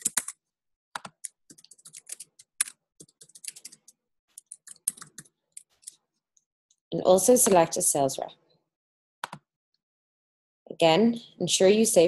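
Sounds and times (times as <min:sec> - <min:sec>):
typing on a computer keyboard: 0:00.0 - 0:00.4, 0:01.0 - 0:05.9.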